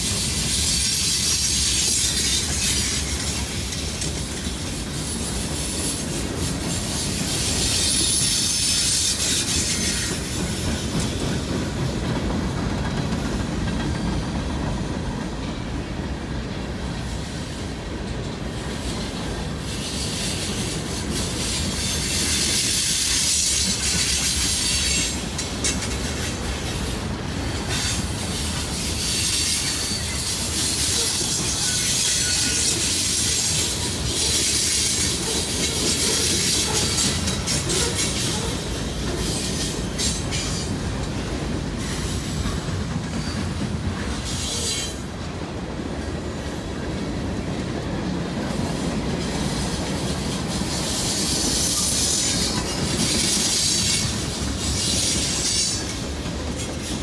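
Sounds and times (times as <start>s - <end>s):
freight train rumbling past: 0.0s - 57.0s
high-pitched wheel squeal: 29.0s - 33.4s.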